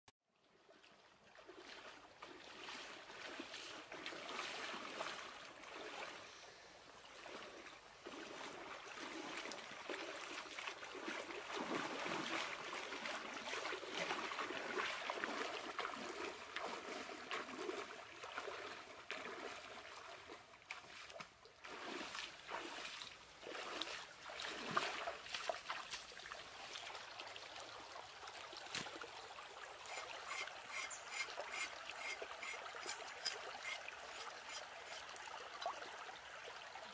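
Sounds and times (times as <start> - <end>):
stream running over stones: 0.6 - 36.9
feet splashing in water: 1.4 - 6.2, 7.2 - 35.8.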